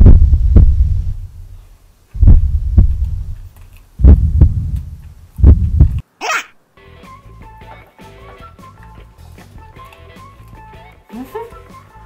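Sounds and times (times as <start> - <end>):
heartbeat thumps: 0.0 - 1.6, 2.2 - 6.0.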